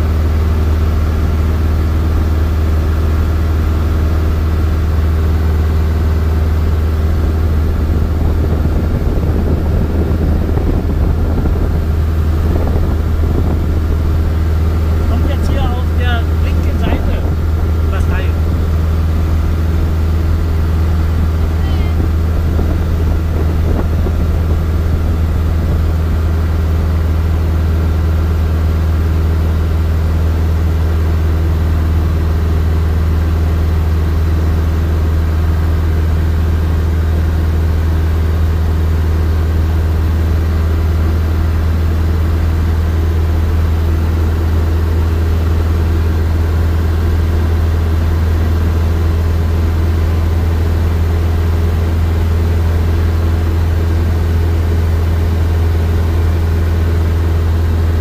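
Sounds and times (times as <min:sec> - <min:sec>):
light aircraft engine drone: 0:00.0 - 0:58.0.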